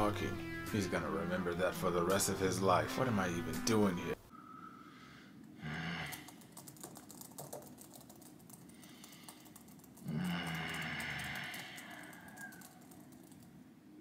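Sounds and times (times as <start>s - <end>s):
fast typing on keyboard: 6.1s - 13.5s.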